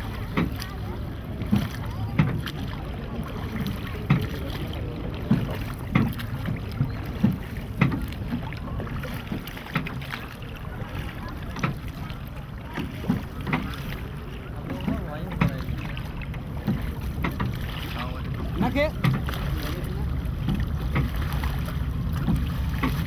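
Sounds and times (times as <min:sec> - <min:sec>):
rush of water and wind: 0:00.0 - 0:23.0
water slapping against boat: 0:00.0 - 0:23.0.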